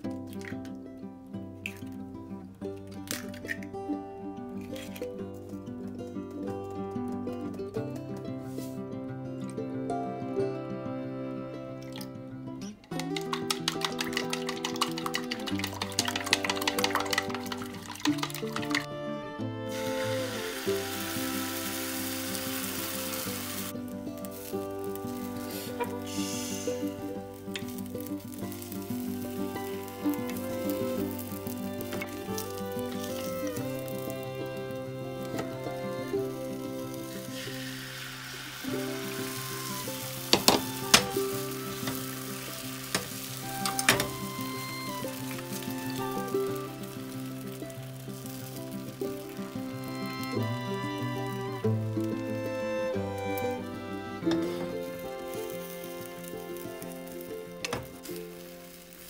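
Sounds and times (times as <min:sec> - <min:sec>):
egg sizzling in a pan: 0:02.7 - 0:05.7, 0:11.8 - 0:12.1, 0:12.8 - 0:59.0
chopsticks tapping a pan: 0:12.9 - 0:18.9, 0:24.2 - 0:37.6, 0:38.8 - 0:50.3, 0:54.2 - 0:58.5.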